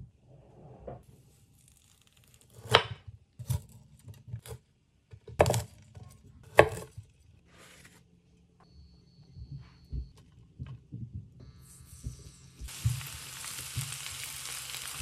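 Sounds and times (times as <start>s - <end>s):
knife cutting broccoli: 6.5s - 7.0s.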